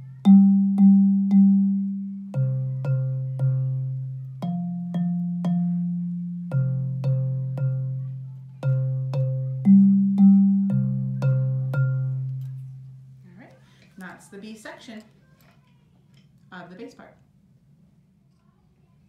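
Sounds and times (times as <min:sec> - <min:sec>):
bass xylophone notes: 0:00.0 - 0:13.3.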